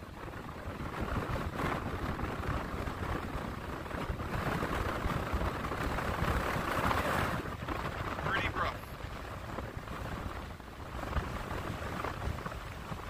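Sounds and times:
gusting wind buffeting microphone: 0.0s - 13.0s
heavy surf breaking: 6.0s - 13.0s.

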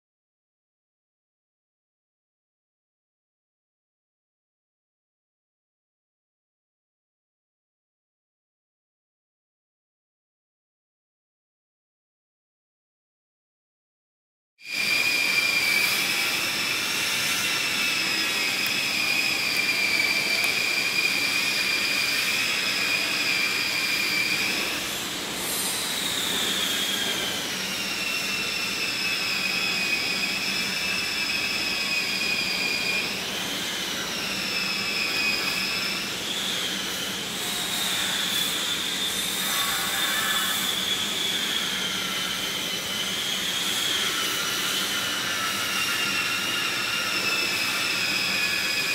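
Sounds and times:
high-pitched generator whine: 14.6s - 48.9s.

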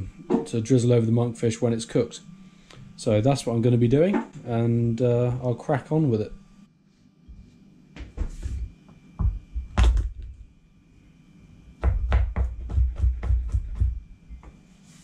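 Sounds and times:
things knocking on plastic board: 9.2s - 10.3s
knife chopping garlic: 11.8s - 14.0s.

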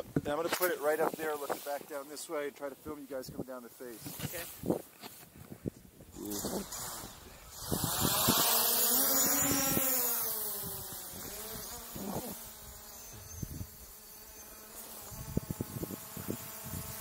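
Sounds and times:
drone propellers buzzing: 6.2s - 17.0s.

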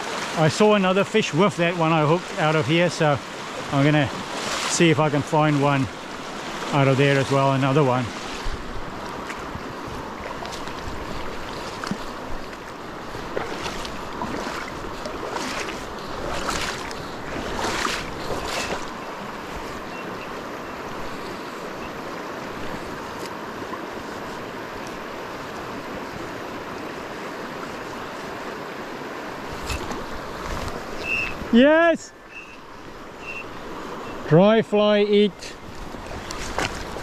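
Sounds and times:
river water rushing over stones: 0.0s - 37.0s.

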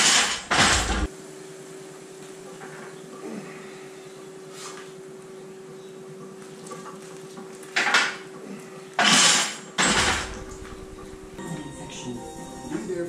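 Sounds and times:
steady low hum: 9.9s - 13.0s.

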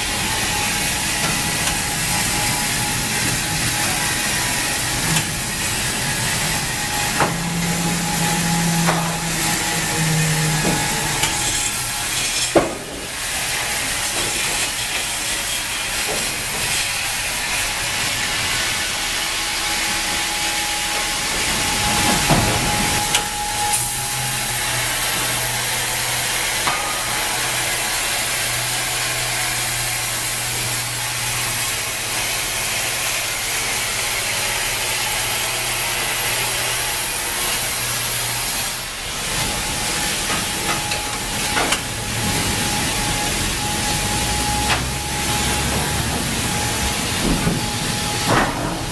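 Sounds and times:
low motor hum: 0.0s - 13.7s, 39.0s - 48.9s
band sawmill hissing: 0.0s - 48.9s.

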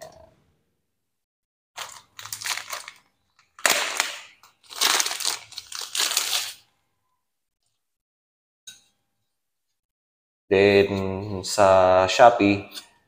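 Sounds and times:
plastic bag crinkling: 1.8s - 6.6s.

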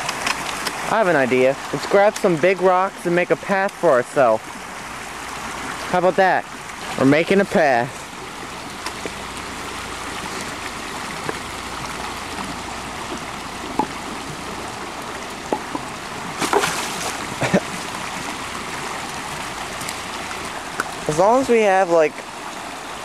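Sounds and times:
creek running over rocks: 0.0s - 23.0s
stones knocking in water: 10.3s - 18.4s.

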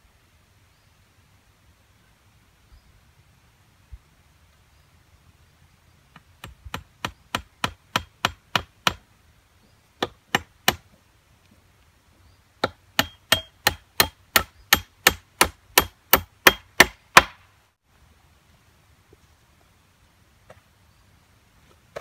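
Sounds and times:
hammering nail into wood: 6.4s - 9.0s, 12.6s - 17.4s.

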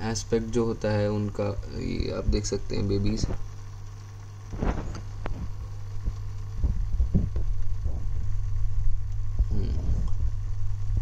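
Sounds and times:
aquarium filter motor hum: 0.0s - 11.0s
low rumbling knocks: 5.4s - 8.3s.

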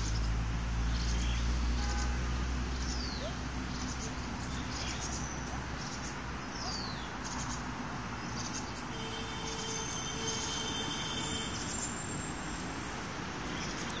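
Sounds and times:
outdoor background noise: 0.0s - 14.0s.

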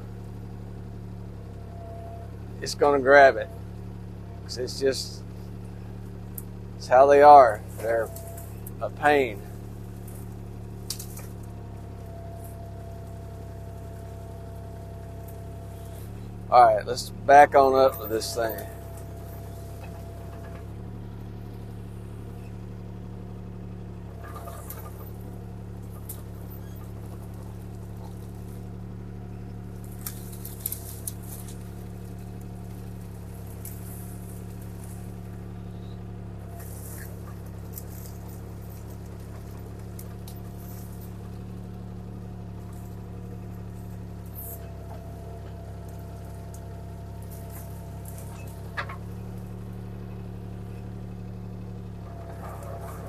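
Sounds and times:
excavator diesel engine running: 0.0s - 53.0s.

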